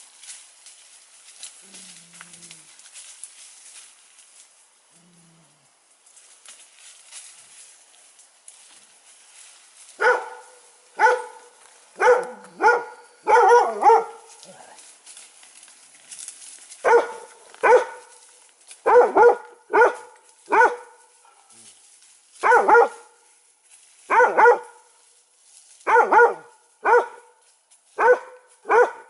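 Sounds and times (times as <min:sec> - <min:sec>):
dog barking: 0:10.0 - 0:14.3, 0:16.8 - 0:18.1, 0:18.8 - 0:21.5, 0:22.4 - 0:23.1, 0:24.1 - 0:24.8, 0:25.9 - 0:27.3, 0:28.0 - 0:29.0.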